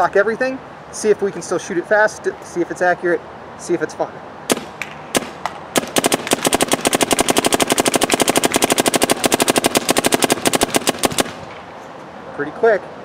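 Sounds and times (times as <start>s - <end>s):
paintball marker firing: 4.5s - 11.6s.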